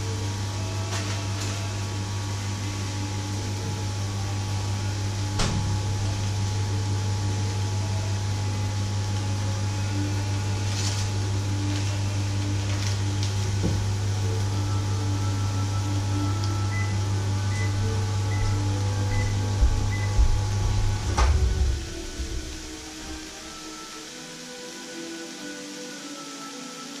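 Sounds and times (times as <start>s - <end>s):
low machine hum with hiss: 0.0s - 27.0s
plastic bag rustling: 10.5s - 14.0s.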